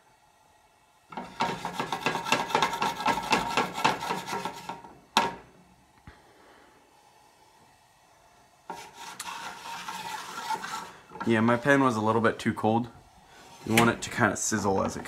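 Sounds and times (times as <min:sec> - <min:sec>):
utensil scraping frying pan: 0:01.1 - 0:05.4, 0:08.6 - 0:12.4, 0:13.2 - 0:15.0.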